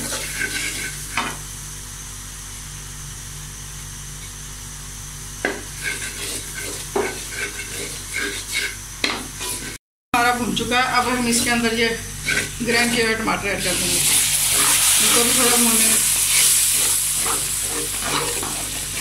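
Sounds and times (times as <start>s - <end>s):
metal spatula scraping pan: 0.0s - 1.3s, 5.8s - 9.8s, 11.0s - 13.2s, 14.0s - 19.0s
oil sizzling in wok: 0.0s - 1.8s, 5.1s - 9.8s, 10.8s - 19.0s.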